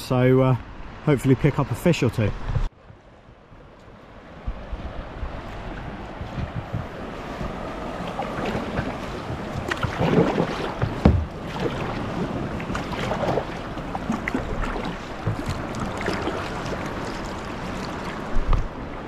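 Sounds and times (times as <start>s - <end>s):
water lapping against kayak hull: 4.3s - 19.0s.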